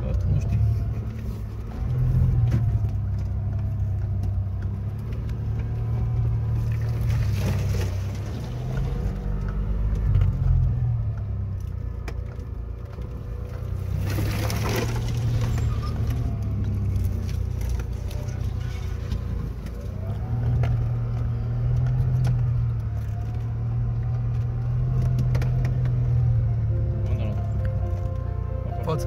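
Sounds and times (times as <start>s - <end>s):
engine running at low revs: 0.0s - 29.0s
mud thrown against windows: 6.7s - 9.0s, 13.8s - 16.6s.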